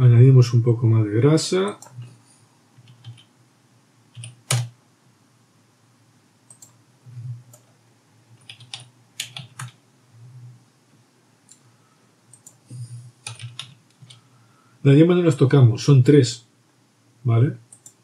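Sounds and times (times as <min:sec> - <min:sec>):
computer keyboard keystrokes: 0:02.8 - 0:03.3, 0:04.2 - 0:04.7, 0:08.4 - 0:09.8, 0:13.2 - 0:14.2.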